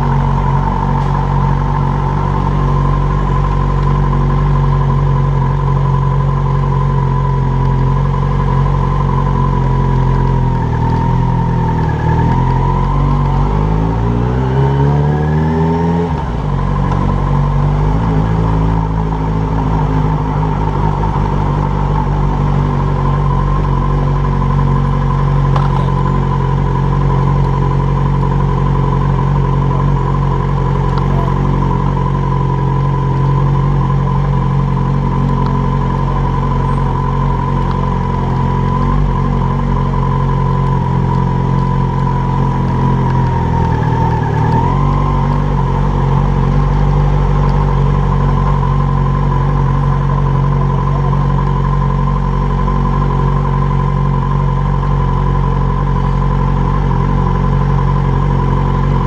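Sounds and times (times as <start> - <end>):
thin steady whine: 0.0 - 14.7
motorcycle engine running: 0.0 - 59.0
road noise: 0.0 - 59.0.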